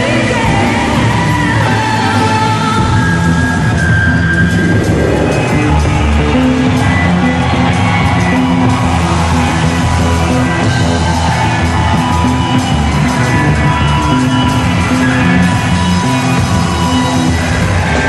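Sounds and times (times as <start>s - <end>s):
rock band playing: 0.0s - 18.0s.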